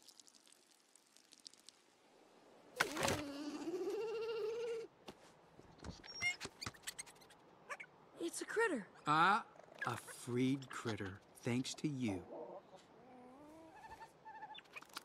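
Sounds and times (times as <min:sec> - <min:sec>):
short squeaks and clicks: 0:05.9 - 0:07.4.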